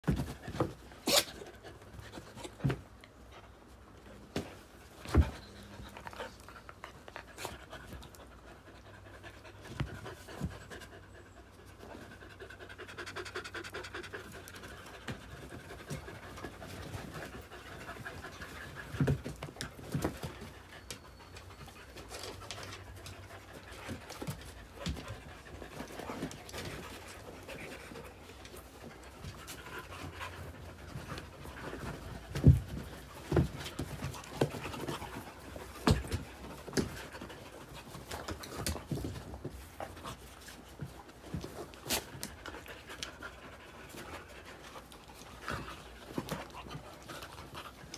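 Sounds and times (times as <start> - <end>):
dogs panting: 0.1 - 47.9
scuffling on dog beds: 14.3 - 47.9.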